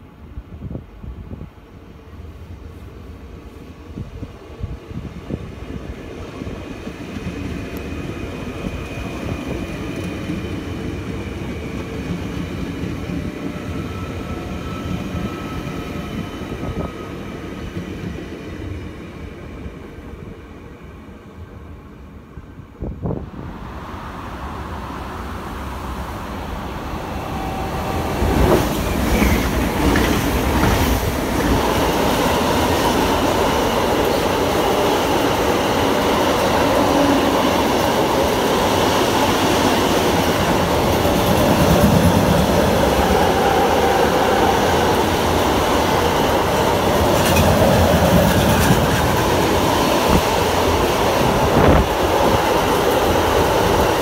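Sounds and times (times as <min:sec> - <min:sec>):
freight train rumbling past: 0:00.0 - 0:54.0
wheels rushing on rail: 0:22.1 - 0:54.0.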